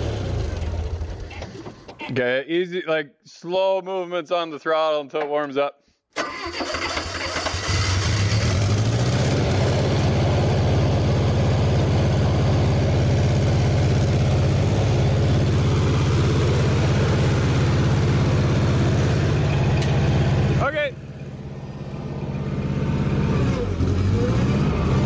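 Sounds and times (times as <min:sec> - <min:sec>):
engine idling roughly: 0:07.4 - 0:24.2.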